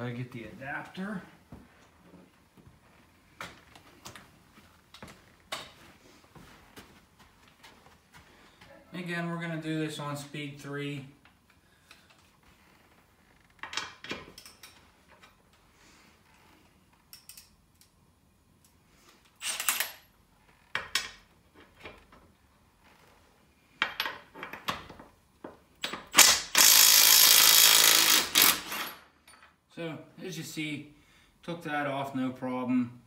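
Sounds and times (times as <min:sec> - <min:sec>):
impact wrench hammering: 0:25.8 - 0:29.0.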